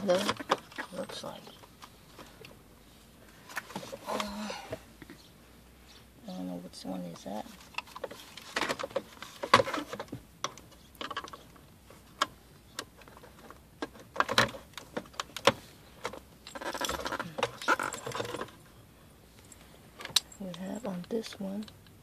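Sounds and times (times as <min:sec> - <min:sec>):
plastic panel clicks and rattles: 0:12.2 - 0:18.6.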